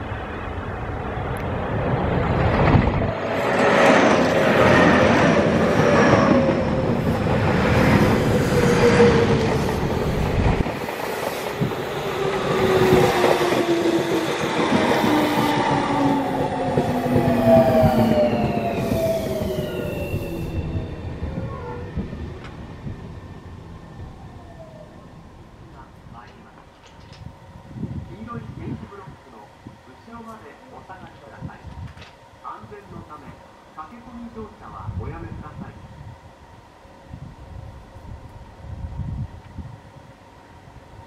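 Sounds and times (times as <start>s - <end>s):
train motor whine: 2.6s - 27.3s.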